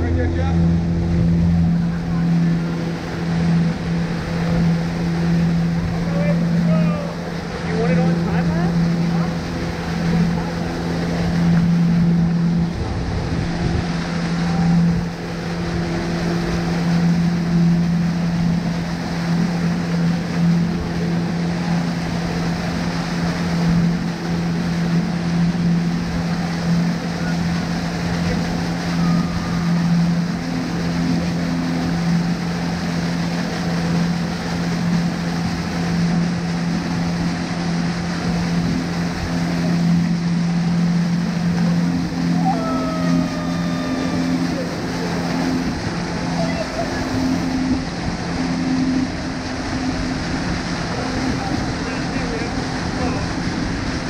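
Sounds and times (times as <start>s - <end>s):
wind buffeting microphone: 0.0s - 27.0s, 35.4s - 54.0s
motorboat engine running: 0.0s - 54.0s
water rushing along hull: 0.0s - 54.0s.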